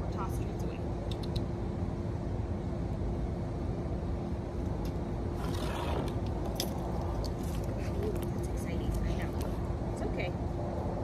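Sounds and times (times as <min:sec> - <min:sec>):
constant hum: 0:00.0 - 0:11.0
low outdoor rumble: 0:00.0 - 0:11.0.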